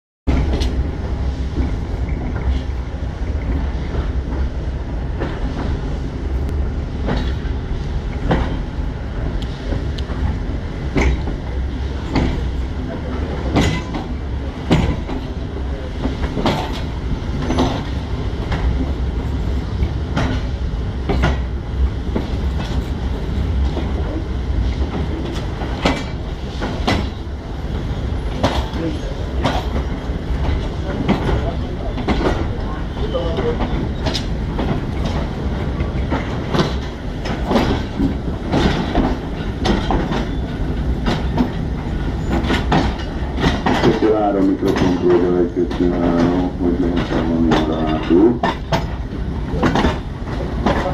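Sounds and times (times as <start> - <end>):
railway carriage rumbling: 0.3 - 50.9.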